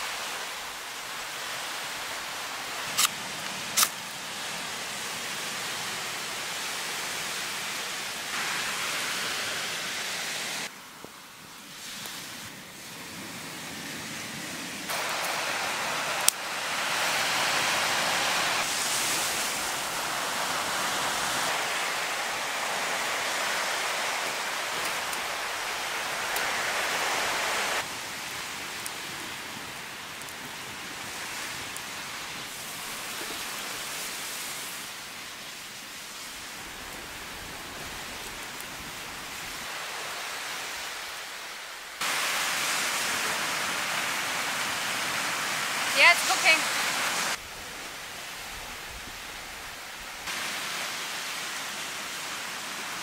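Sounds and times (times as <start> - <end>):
steady outdoor hiss: 0.0 - 53.0.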